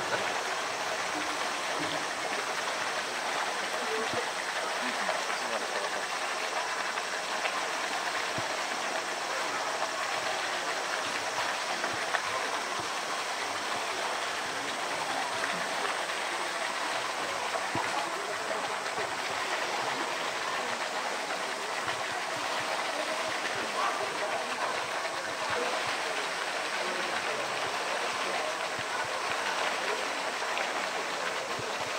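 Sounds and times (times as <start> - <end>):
indistinct chatter of onlookers: 0.0 - 31.9
rush of water: 0.0 - 31.9.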